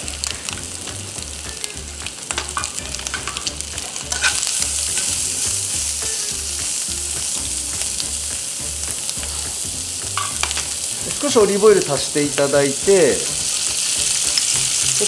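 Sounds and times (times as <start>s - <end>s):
food sizzling in a frying pan: 0.0s - 15.0s
metal tongs clicking on pan: 2.3s - 5.2s, 10.2s - 10.7s.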